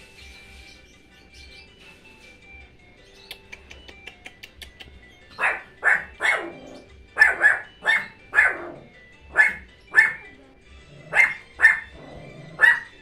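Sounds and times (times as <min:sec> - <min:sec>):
dog barking: 0:05.4 - 0:10.4, 0:11.1 - 0:13.0.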